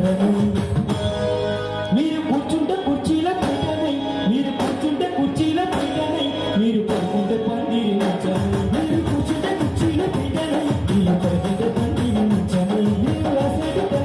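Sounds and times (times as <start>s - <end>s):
electronic keyboard: 0.0s - 14.0s
person singing: 1.9s - 14.0s
frame drums beating: 8.2s - 14.0s.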